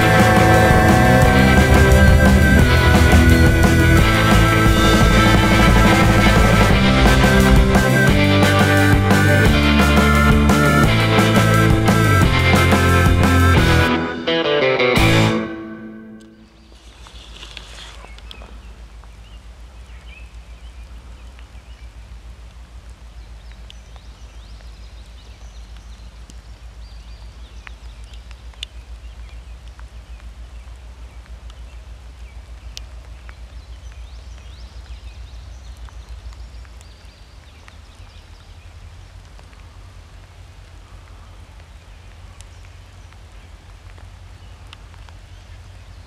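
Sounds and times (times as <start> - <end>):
low rumble: 0.0 - 13.9
faint bird calls: 16.2 - 22.0
light ticks: 21.1 - 30.3, 32.6 - 35.0, 35.7 - 38.5, 41.5 - 45.6.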